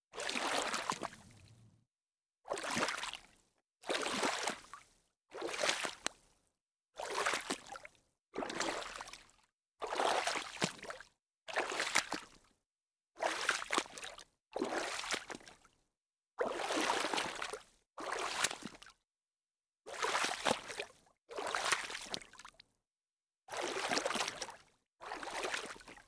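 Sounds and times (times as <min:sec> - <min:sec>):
water splashing: 0:00.2 - 0:01.5.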